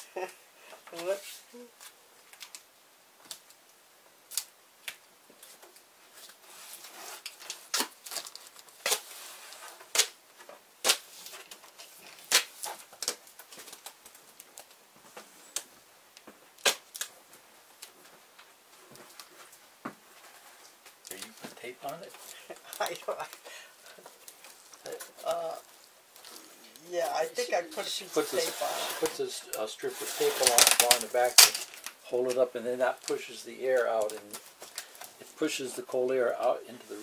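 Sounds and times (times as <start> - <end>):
tape snapping and crackling: 1.8 - 6.4, 7.1 - 14.8, 15.5 - 19.6, 20.6 - 26.9, 30.3 - 32.4
duct tape ripping: 4.3 - 5.0, 6.7 - 10.2, 10.8 - 14.8, 16.5 - 17.1, 27.5 - 32.0.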